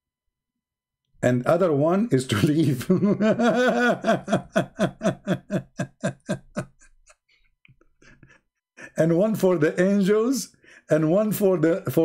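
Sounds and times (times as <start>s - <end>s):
man laughing: 2.3s - 7.3s.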